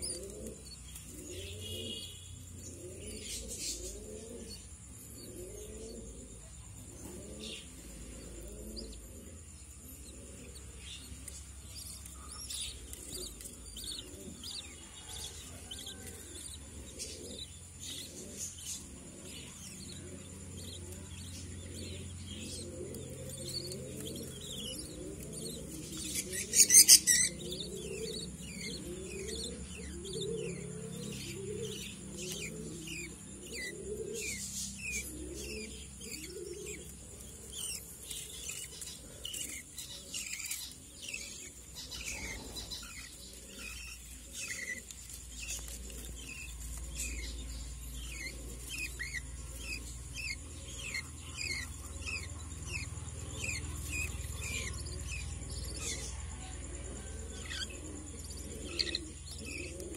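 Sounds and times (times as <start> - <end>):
birds chirping: 0.0 - 59.9
birds cooing: 0.0 - 59.9.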